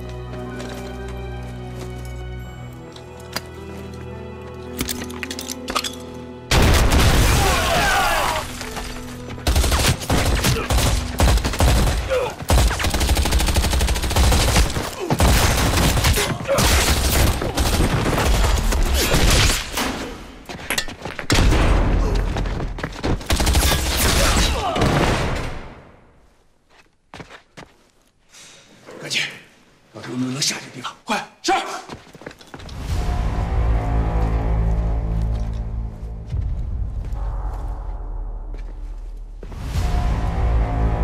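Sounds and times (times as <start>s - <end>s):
dramatic music: 0.0s - 20.5s, 32.7s - 41.0s
heavy continuous gunfire: 9.4s - 19.0s.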